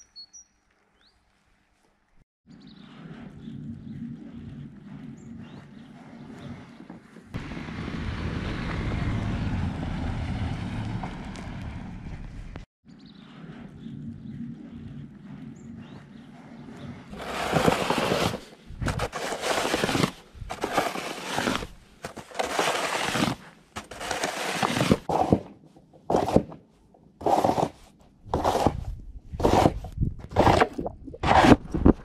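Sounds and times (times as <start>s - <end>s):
snow shovel scraping pavement: 17.1s - 25.5s, 26.1s - 26.5s, 27.2s - 28.8s, 29.4s - 32.0s.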